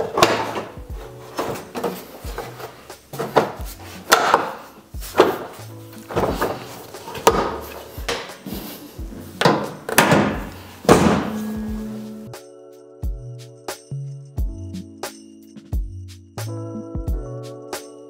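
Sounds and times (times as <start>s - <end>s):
hard plastic knocks and snaps: 0.0s - 0.7s, 3.2s - 4.6s, 6.1s - 8.4s, 9.4s - 11.4s.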